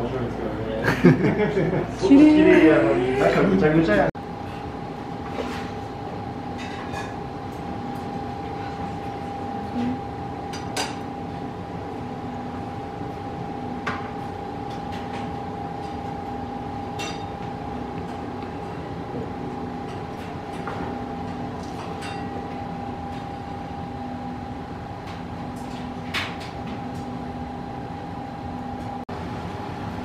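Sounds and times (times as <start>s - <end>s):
kitchen equipment hum: 0.0s - 30.0s
dishes and utensils clinking: 6.6s - 7.2s, 16.9s - 17.4s, 19.8s - 22.4s.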